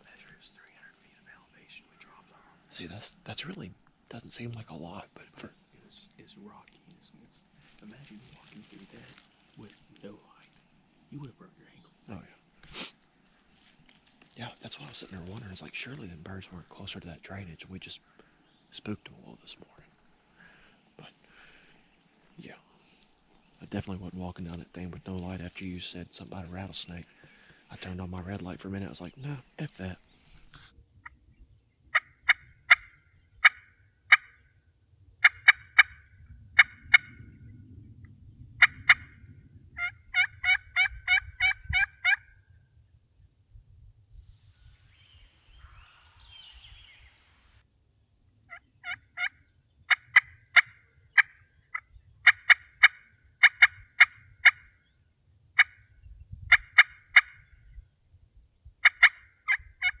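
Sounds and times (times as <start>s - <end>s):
turkey call clucks and yelps: 31.9s - 34.4s, 35.2s - 36.0s, 38.6s - 39.2s, 39.8s - 42.4s, 48.5s - 54.7s, 55.6s - 55.8s, 56.5s - 57.4s, 58.8s - 60.0s.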